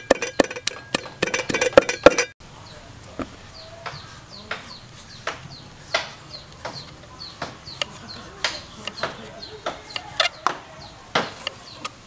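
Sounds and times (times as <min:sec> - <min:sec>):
chickens chirping: 0:02.6 - 0:12.0.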